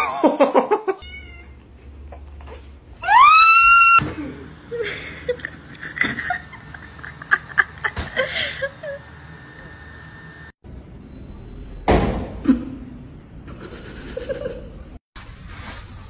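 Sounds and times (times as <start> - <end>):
cat meowing: 1.0 - 1.6.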